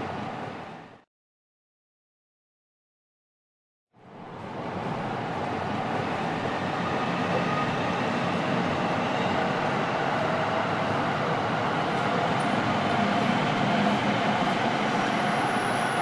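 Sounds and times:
train rumbling: 4.4s - 16.0s.

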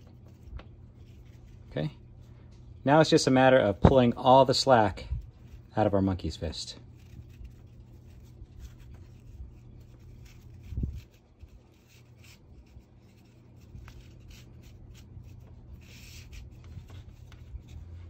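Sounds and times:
cord rubbing and sliding: 6.8s - 18.0s.

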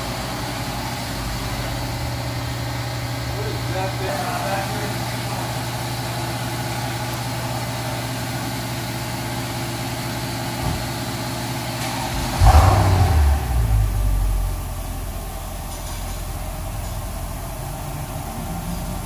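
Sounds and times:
car engine idling: 0.0s - 19.0s
car engine revving: 11.8s - 19.0s.

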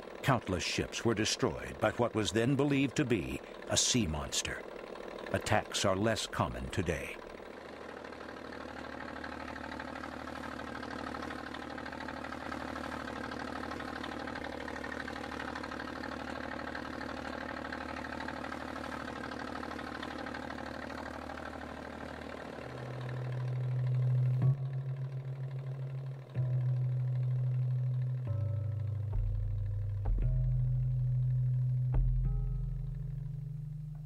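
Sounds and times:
boat engine running steadily: 0.0s - 34.0s
low droning tone: 22.9s - 34.0s.

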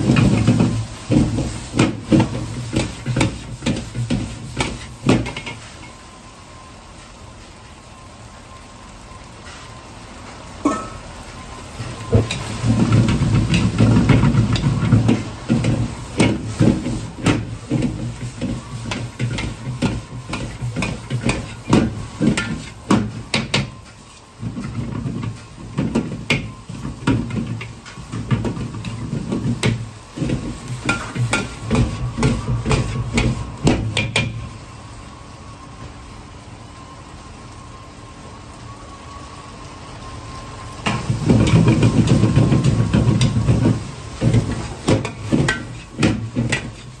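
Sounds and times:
gas burner rumble: 0.0s - 47.0s
metal ladle scraping wok: 44.2s - 47.0s.

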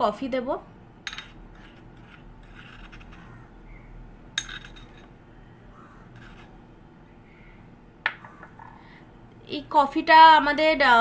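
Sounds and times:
spoon scraping glass bowl: 1.2s - 3.3s, 6.2s - 6.6s.

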